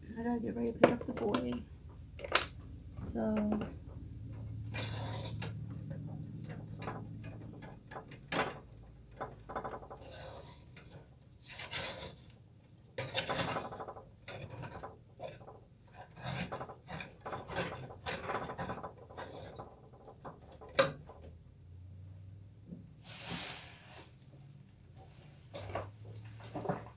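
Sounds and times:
kitchen handling clicks and knocks: 0:00.7 - 0:10.2, 0:13.0 - 0:21.3.

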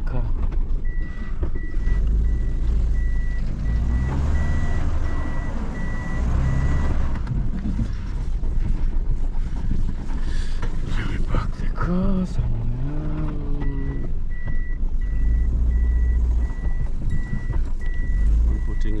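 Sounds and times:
car engine running: 0:00.0 - 0:19.0
reversing beeper: 0:00.9 - 0:07.1, 0:13.4 - 0:19.0.

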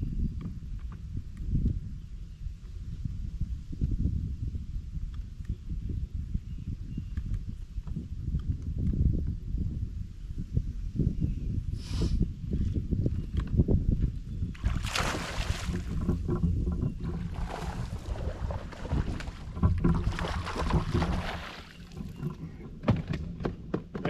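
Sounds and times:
wind rumbling on microphone: 0:00.0 - 0:24.0
fish splashing in water: 0:14.6 - 0:16.2, 0:17.1 - 0:22.3.

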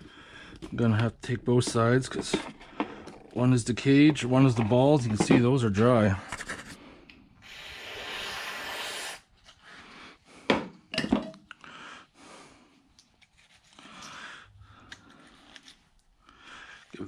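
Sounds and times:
aerosol can spraying: 0:07.4 - 0:09.2.

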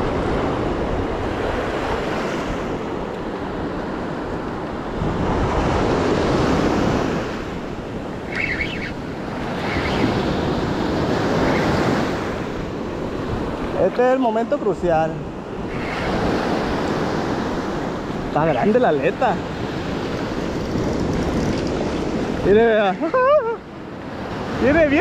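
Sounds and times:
wind buffeting microphone: 0:00.0 - 0:22.8
ocean surf washing: 0:00.0 - 0:25.0.

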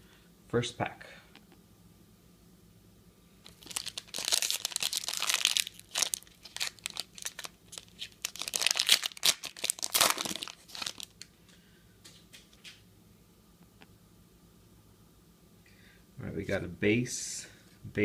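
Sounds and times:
foil wrapper crinkling and tearing: 0:03.4 - 0:11.3.

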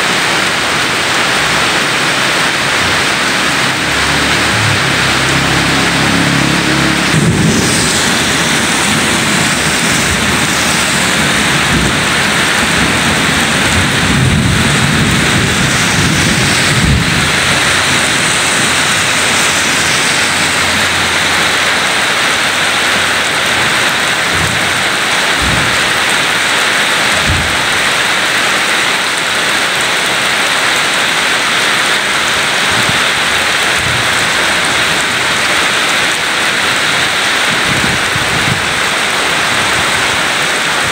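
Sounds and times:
heavy rain on gravel and pavement: 0:00.0 - 0:40.9
low rumble: 0:00.6 - 0:30.4.

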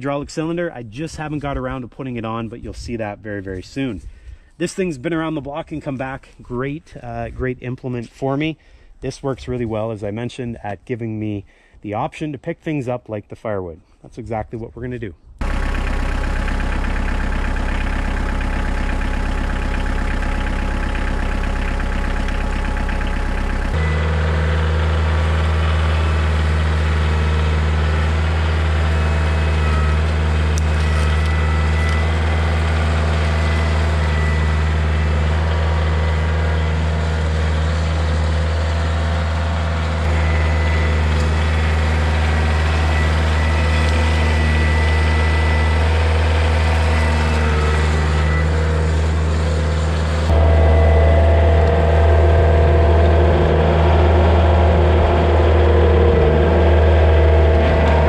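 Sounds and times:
tractor diesel engine running: 0:15.4 - 0:58.0
thin high whine: 0:50.3 - 0:58.0.

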